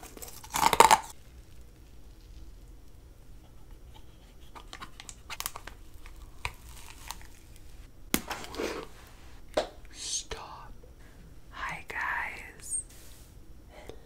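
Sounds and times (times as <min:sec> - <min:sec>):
candy snapping: 0:00.0 - 0:03.0, 0:04.5 - 0:08.4
crinkly clicks while eating: 0:00.0 - 0:03.0, 0:03.9 - 0:07.6
crunching: 0:00.0 - 0:03.0, 0:04.6 - 0:08.9.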